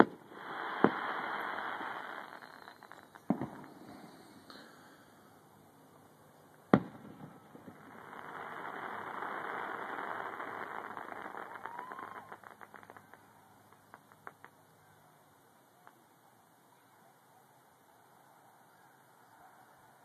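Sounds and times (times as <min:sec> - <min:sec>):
firework crackles: 0:00.0 - 0:05.6, 0:06.5 - 0:16.2.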